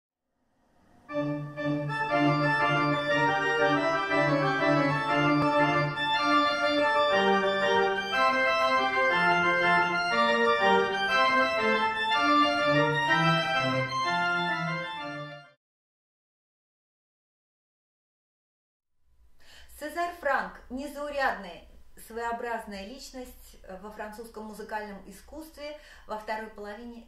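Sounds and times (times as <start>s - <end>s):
pipe organ chords: 1.1s - 15.6s.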